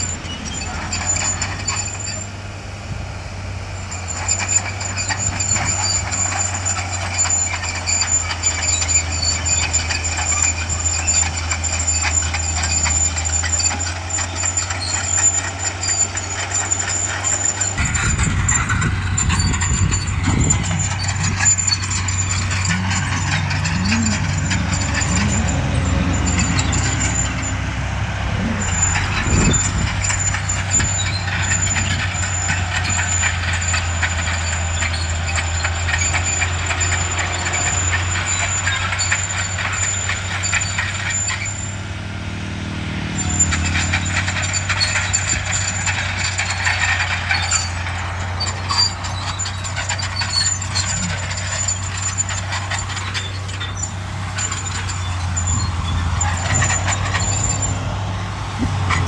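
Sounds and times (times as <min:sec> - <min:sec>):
heavy diesel engines running: 0:00.0 - 0:59.0
engine pitch rising and falling: 0:04.3 - 0:34.0.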